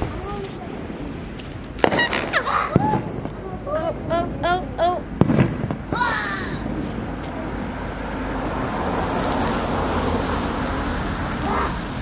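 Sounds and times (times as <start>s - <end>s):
blowtorch flame hissing: 8.8s - 12.0s
firework sparks fizzing and crackling: 8.8s - 12.0s.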